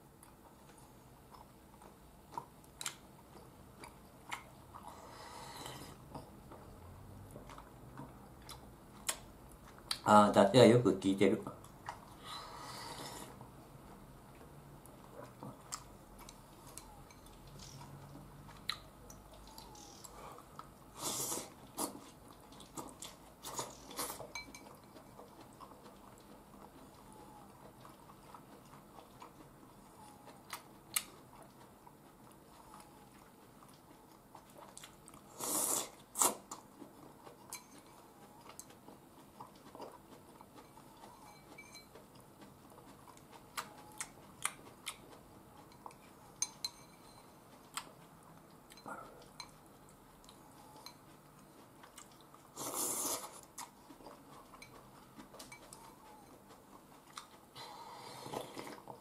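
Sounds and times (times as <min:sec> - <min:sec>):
quiet chewing: 0:00.1 - 0:10.1, 0:11.5 - 0:59.0
slurp of soup: 0:52.6 - 0:53.4.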